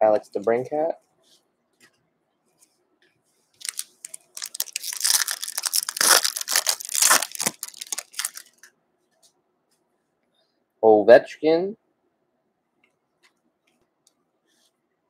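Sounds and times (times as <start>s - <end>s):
foil wrapper tearing and crinkling: 3.6s - 8.7s.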